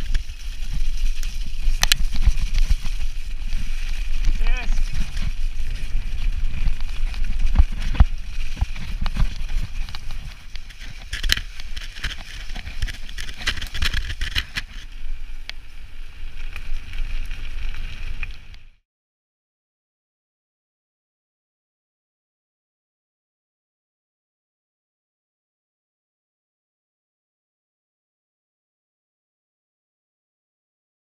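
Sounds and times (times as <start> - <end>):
bike knocking and rattling: 0.0 - 18.6
low rumble of wind and ground: 0.0 - 18.8.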